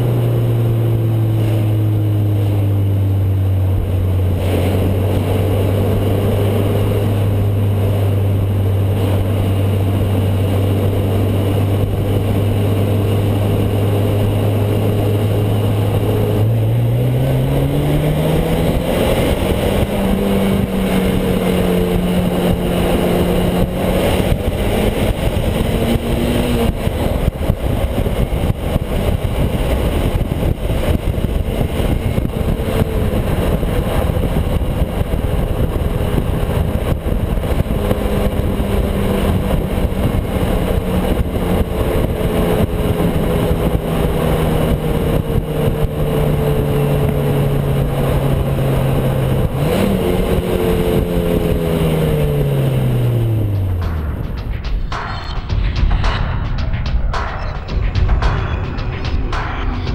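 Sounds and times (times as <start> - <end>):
car exhaust drone: 0.0 - 59.9
road noise: 0.0 - 59.9
rushing wind: 0.0 - 59.9.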